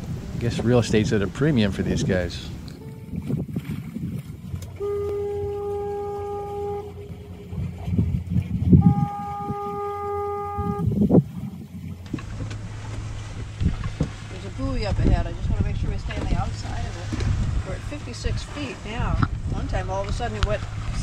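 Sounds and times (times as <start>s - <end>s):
low rumble: 0.0s - 21.0s
fog signal blasts: 4.8s - 7.6s, 8.8s - 11.1s.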